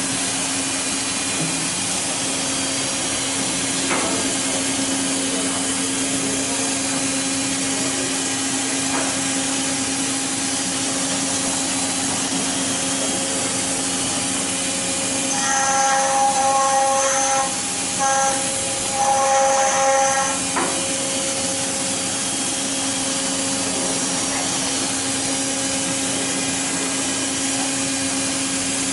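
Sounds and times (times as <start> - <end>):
high machine whine: 0.0 - 28.9
stone carving machine grinding: 15.0 - 21.2.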